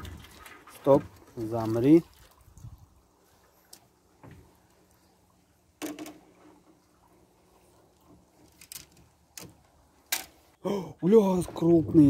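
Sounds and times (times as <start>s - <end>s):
water splash: 0.0s - 2.8s.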